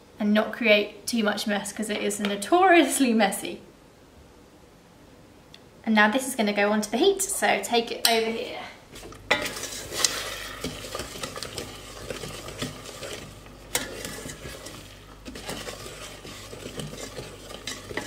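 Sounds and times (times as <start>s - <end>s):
wooden spoon scraping saucepan: 9.0s - 18.0s.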